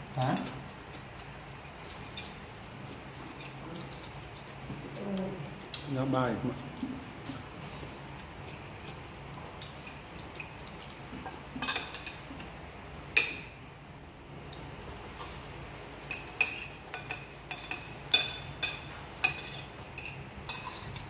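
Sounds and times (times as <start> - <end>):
spoons clinking on ceramic plates: 11.6 - 12.3, 16.0 - 21.0.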